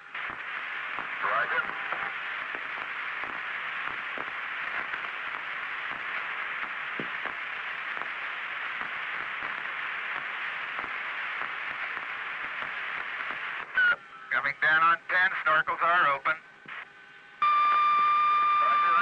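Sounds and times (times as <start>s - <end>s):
radio hiss: 0.0s - 19.0s.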